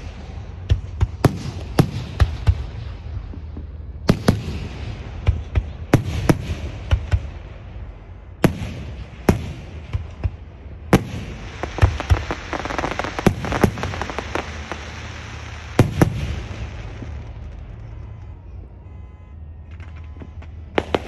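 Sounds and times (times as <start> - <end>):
firework shells bursting: 11.0 - 17.9.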